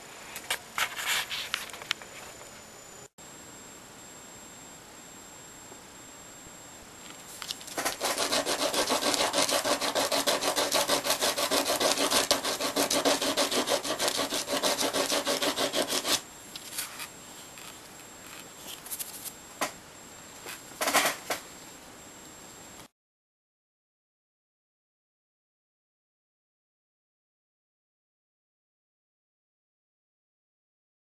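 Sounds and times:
wooden peg scraping on sandpaper: 0:07.7 - 0:16.2.

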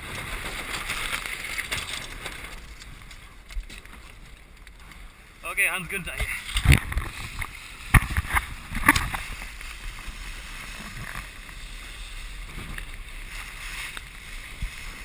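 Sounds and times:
wind on microphone: 0:06.1 - 0:15.0
water slapping against hull: 0:06.2 - 0:11.4.

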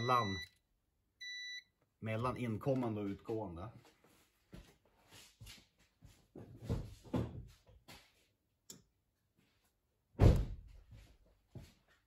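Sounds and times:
loud heavy thump: 0:10.2 - 0:10.6.

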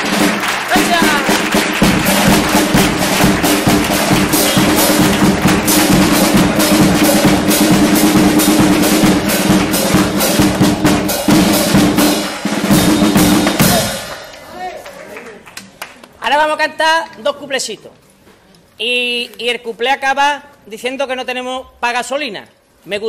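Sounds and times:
strummed guitars: 0:00.0 - 0:14.2
bass drum: 0:00.0 - 0:14.3
snare drum: 0:00.0 - 0:14.5.

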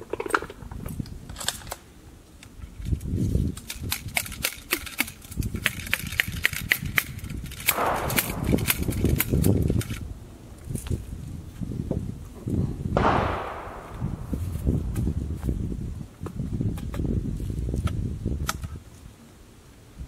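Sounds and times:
ramrod clicking in rifle barrel: 0:02.4 - 0:10.0.

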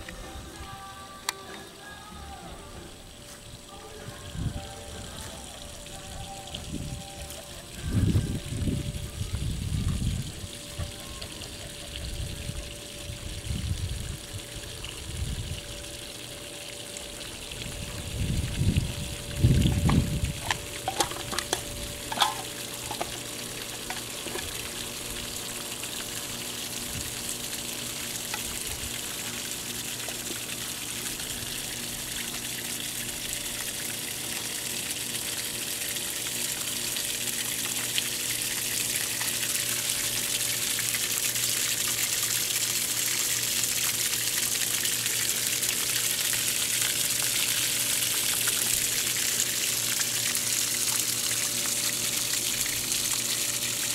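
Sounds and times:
water gushing and splashing on grass: 0:17.0 - 0:53.9.

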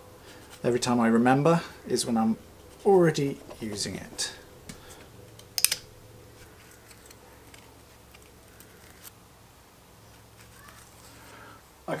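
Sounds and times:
secateurs snipping: 0:04.6 - 0:05.9.

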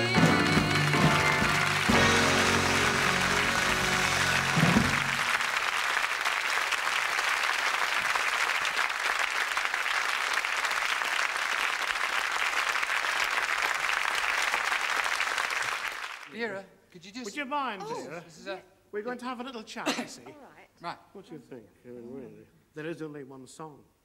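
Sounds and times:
audience applauding: 0:00.0 - 0:16.3.

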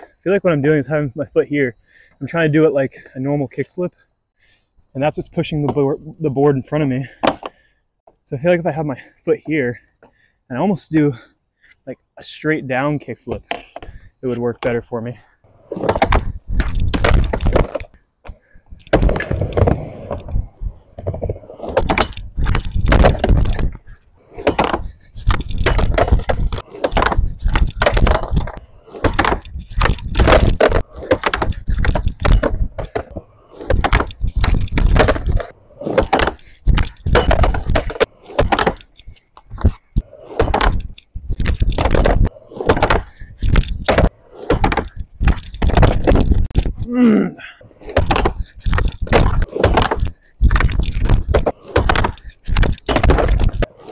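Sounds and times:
skateboard rolling on wooden ramp: 0:15.5 - 0:17.9, 0:18.9 - 0:46.6, 0:47.6 - 0:53.9.

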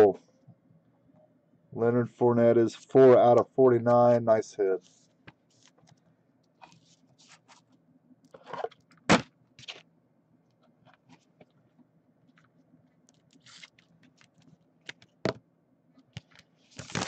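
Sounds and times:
plastic rustling and scraping: 0:06.6 - 0:08.8, 0:09.6 - 0:09.8, 0:13.1 - 0:15.1, 0:16.1 - 0:17.0.

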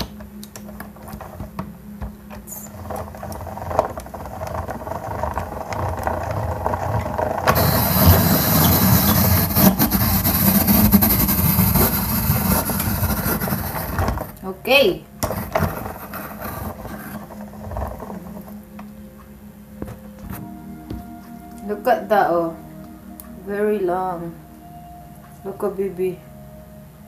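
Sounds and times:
apple peeler mechanical whirring: 0:02.3 - 0:14.4
blade scraping apple peel: 0:07.5 - 0:14.4.

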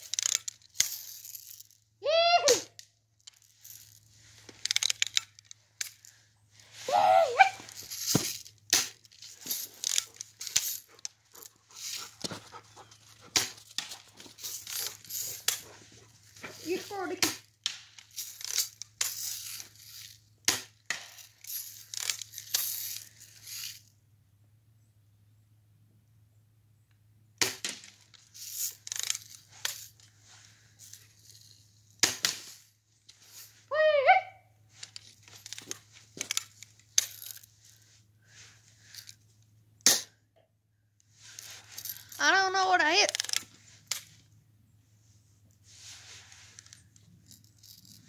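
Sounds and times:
rustling and clicking: 0:00.0 - 0:01.8, 0:02.5 - 0:23.9, 0:27.5 - 0:33.7, 0:34.7 - 0:39.5, 0:41.0 - 0:44.4, 0:45.4 - 0:48.0
dog panting: 0:10.8 - 0:13.7.

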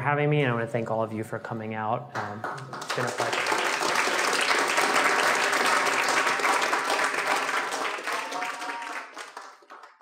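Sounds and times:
audience applauding: 0:02.2 - 0:10.0.

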